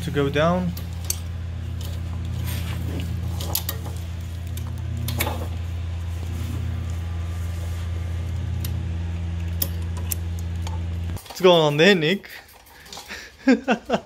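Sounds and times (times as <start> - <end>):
steady low hum: 0.0 - 14.0
light metallic clinks and knocks: 0.7 - 2.4.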